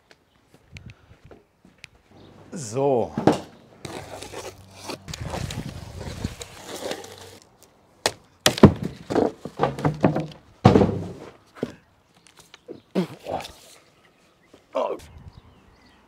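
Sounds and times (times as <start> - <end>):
wooden boards knocking: 8.4 - 11.8.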